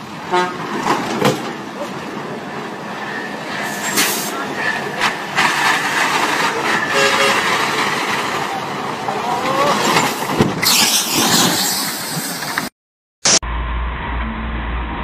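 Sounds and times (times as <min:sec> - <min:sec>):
loud rushing noise: 0:00.0 - 0:12.7
truck engine and road noise: 0:00.0 - 0:15.0
voices: 0:01.6 - 0:10.2.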